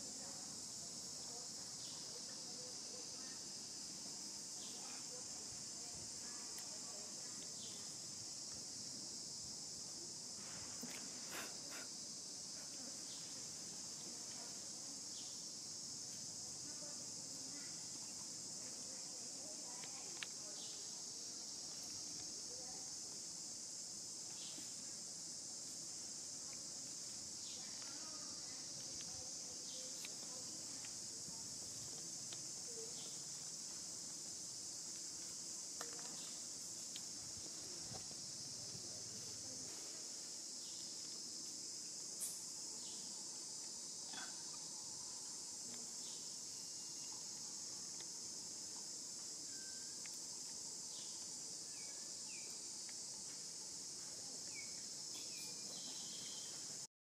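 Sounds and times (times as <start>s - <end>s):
insects chorus: 0.0s - 56.9s
faint clicks and chirps: 6.5s - 8.6s, 19.7s - 21.0s, 27.4s - 33.5s, 42.2s - 53.4s.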